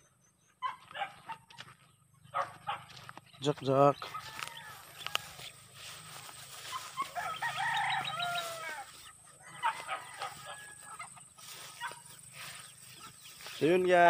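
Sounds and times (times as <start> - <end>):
rooster crowing: 4.0 - 11.9.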